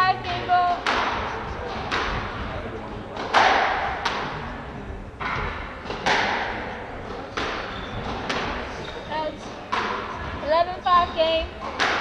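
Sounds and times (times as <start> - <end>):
squash ball cracks: 0.8 - 2.4, 3.2 - 4.4, 5.2 - 8.7, 11.6 - 12.0.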